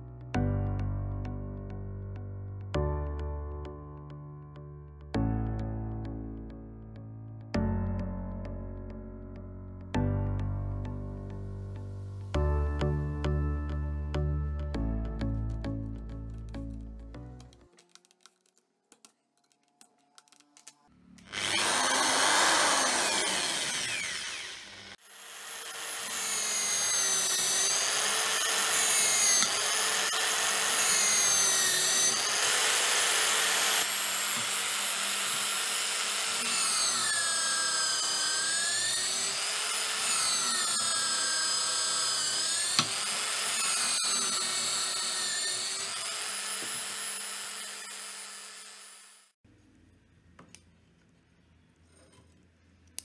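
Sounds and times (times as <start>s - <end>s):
electric drill boring wood: 19.6s - 49.4s.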